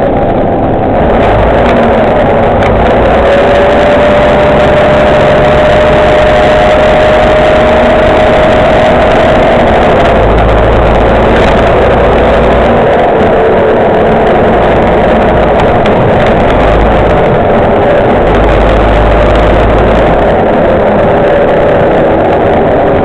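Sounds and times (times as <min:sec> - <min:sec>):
bus engine running: 0:00.0 - 0:23.0
deep drone: 0:00.0 - 0:23.0
steady whine: 0:00.0 - 0:23.0.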